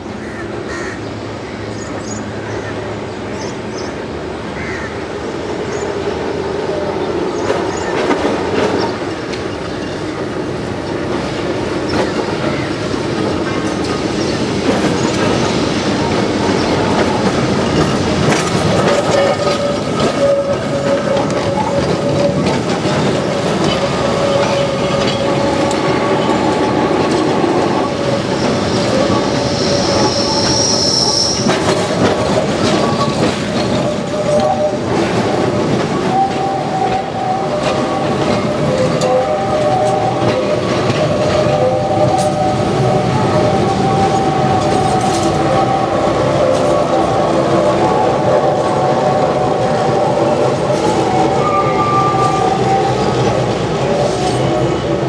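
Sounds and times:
tram wheels clicking over track: 0:07.2 - 0:55.0
high thin wheel squeal: 0:27.8 - 0:31.9.

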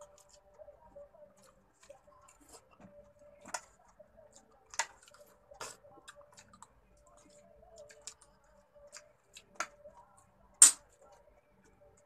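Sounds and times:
wet chewing: 0:01.2 - 0:09.9.

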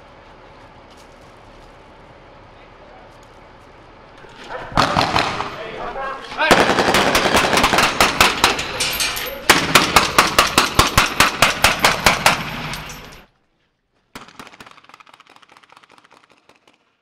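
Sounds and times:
rapid rifle fire: 0:04.6 - 0:05.6, 0:06.4 - 0:08.7, 0:09.5 - 0:12.8, 0:14.2 - 0:17.0.

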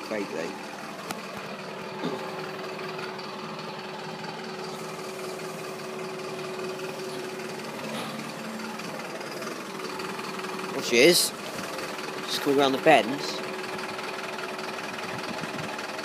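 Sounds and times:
machine humming: 0:00.8 - 0:12.3.

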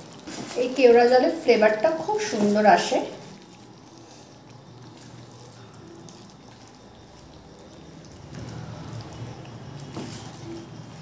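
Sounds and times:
gravy bubbling: 0:00.0 - 0:11.0
spatula stirring gravy: 0:02.2 - 0:11.0.

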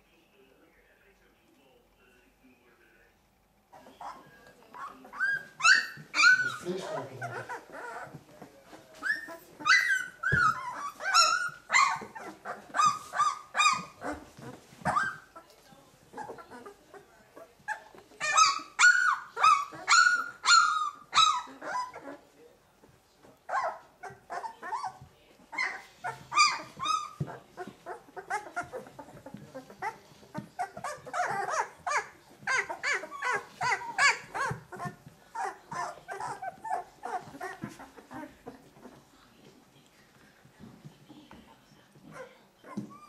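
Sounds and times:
puppies crying and squealing: 0:03.7 - 0:15.5, 0:16.1 - 0:22.3, 0:23.4 - 0:39.1.

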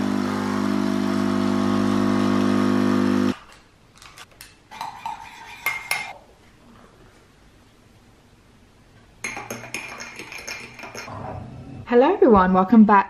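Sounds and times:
coffee machine pump buzzing: 0:00.0 - 0:03.3.

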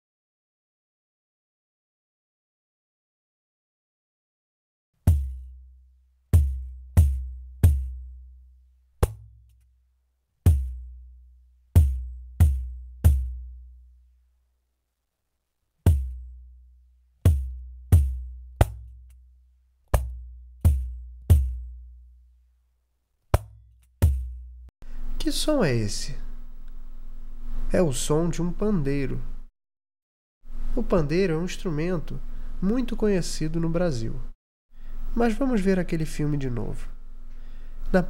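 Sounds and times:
frame drum hits: 0:05.1 - 0:05.6, 0:06.4 - 0:08.2, 0:09.0 - 0:09.4, 0:10.5 - 0:10.9, 0:11.8 - 0:13.5, 0:15.9 - 0:16.3, 0:17.3 - 0:19.0, 0:19.9 - 0:21.8, 0:23.4 - 0:24.5.

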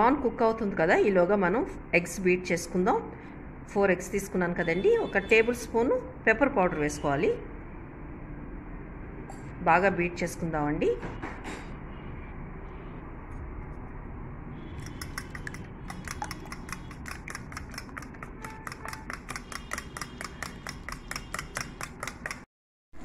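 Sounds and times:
whisk clicking in metal bowl: 0:14.8 - 0:22.5.

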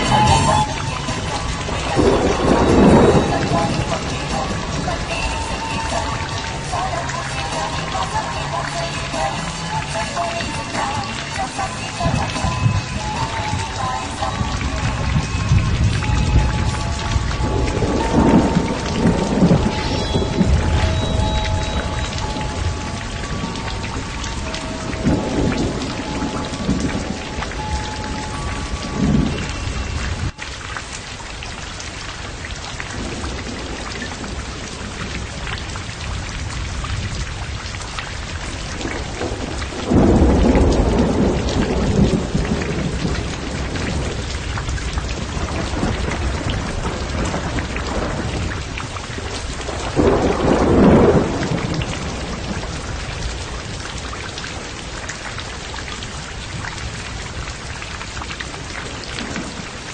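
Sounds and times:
faint held music notes: 0:00.0 - 0:30.4
thunder rolling: 0:00.0 - 0:30.4, 0:32.3 - 0:55.0
steady rain: 0:00.0 - 0:59.9.

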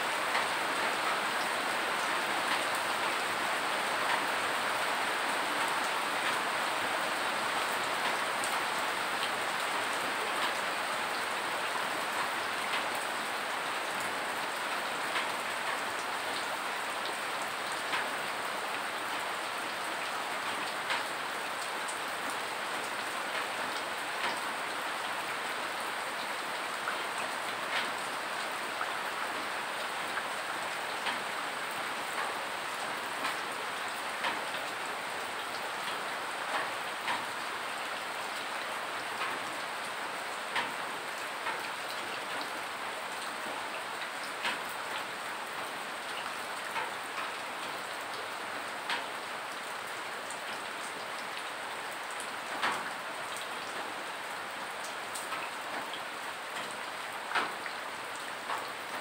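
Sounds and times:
steady rain falling: 0:00.0 - 0:59.0
rainwater drips landing close: 0:14.8 - 0:42.5, 0:58.4 - 0:59.0.

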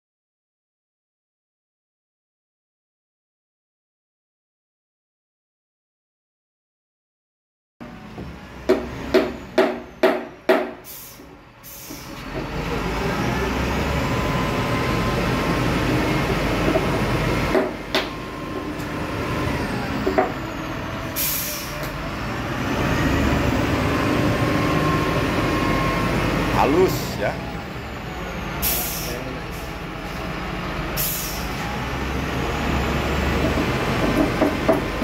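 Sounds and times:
wheel loader diesel engine: 0:07.8 - 0:35.0
sharp knocks: 0:08.7 - 0:10.8
air hiss: 0:28.6 - 0:29.2, 0:31.0 - 0:31.6.

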